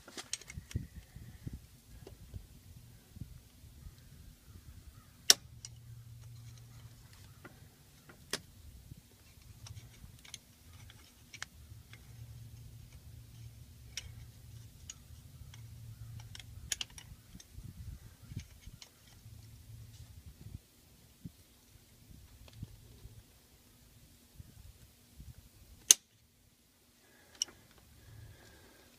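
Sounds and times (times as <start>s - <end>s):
low wind rumble: 0.3s - 25.8s
hand tools clicking on metal: 9.2s - 17.5s.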